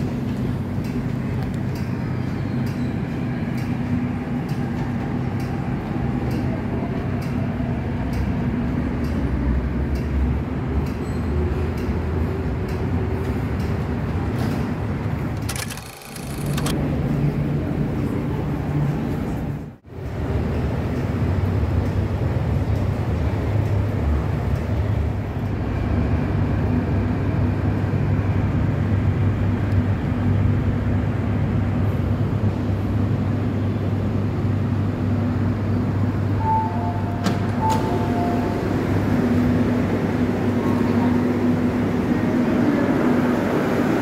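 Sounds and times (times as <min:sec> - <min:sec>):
train rumble and hum: 0:00.0 - 0:44.0
two-note electronic tone: 0:36.4 - 0:38.8.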